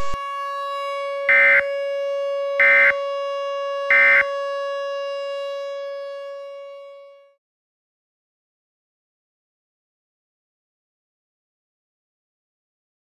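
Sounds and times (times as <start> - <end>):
electronic drone tone: 0.0 - 0.2.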